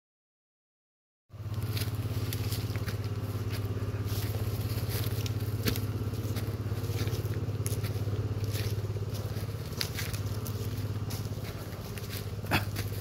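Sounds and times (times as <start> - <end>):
steady low drone: 1.3 - 13.0
footsteps in dry leaves: 1.4 - 13.0.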